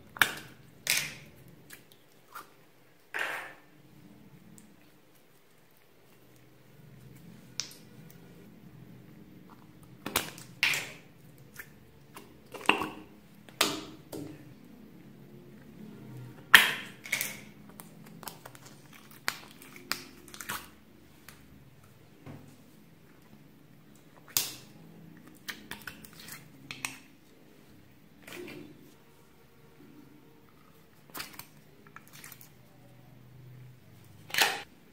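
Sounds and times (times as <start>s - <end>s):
slime popping and squelching: 0.0s - 3.7s, 9.4s - 14.6s, 16.5s - 21.4s.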